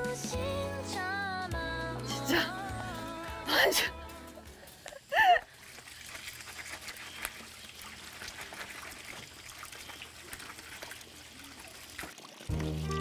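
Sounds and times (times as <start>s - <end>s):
water trickling from a tap: 4.8s - 13.0s.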